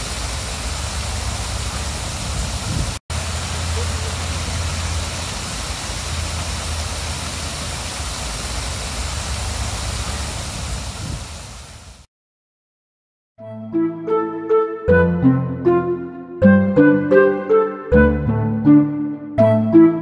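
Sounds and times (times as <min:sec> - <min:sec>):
rushing outdoor noise: 0:00.0 - 0:12.1.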